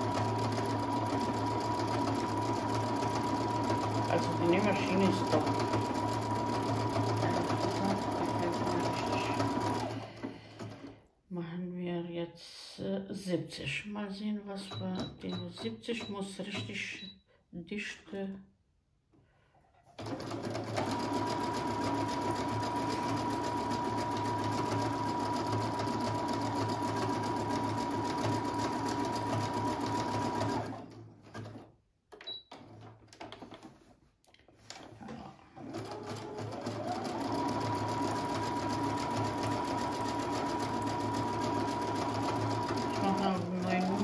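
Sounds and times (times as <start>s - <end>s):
sewing machine whining: 0.0s - 11.0s, 20.0s - 31.6s, 35.5s - 44.0s.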